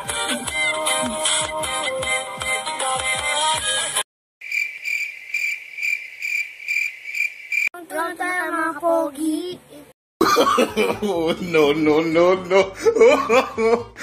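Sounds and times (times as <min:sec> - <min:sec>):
cricket chirping: 0:04.4 - 0:07.7
child's voice: 0:07.8 - 0:10.0.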